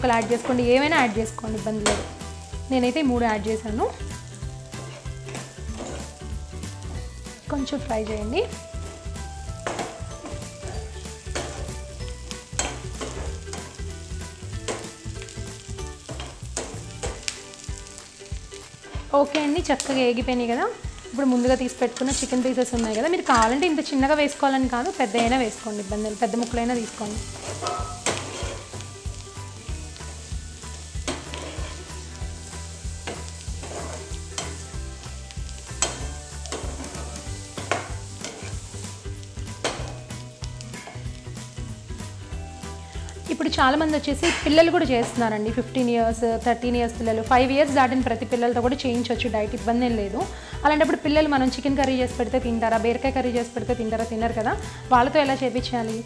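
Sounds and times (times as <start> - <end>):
vegetables sizzling in a frying pan: 0.0 - 56.0
metal spoon scraping a pan: 3.9 - 6.2, 9.6 - 13.9, 18.6 - 23.8, 25.0 - 28.9, 29.9 - 34.8, 35.5 - 40.0.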